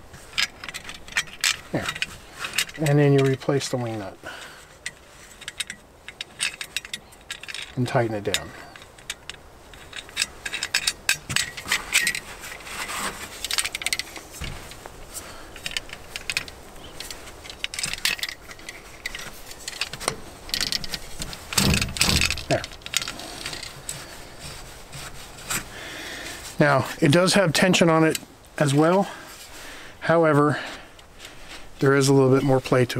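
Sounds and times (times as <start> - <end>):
metal clicks and scrapes: 0.1 - 29.0
saw frame and blade rattling: 0.2 - 14.8, 15.4 - 25.7.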